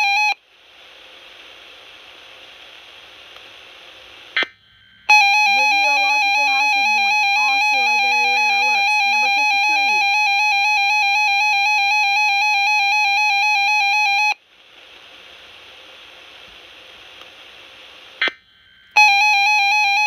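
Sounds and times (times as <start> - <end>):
steady hiss: 0.4 - 8.7, 14.4 - 19.0
warbling electronic alert tone: 5.1 - 13.7.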